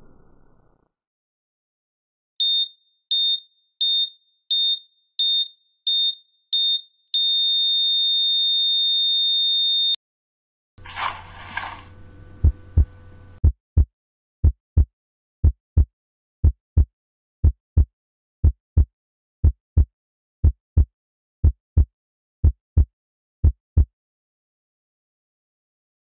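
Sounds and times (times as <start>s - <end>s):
low hum: 0.0s - 0.8s, 10.8s - 13.4s
heartbeat double thump: 12.4s - 23.9s.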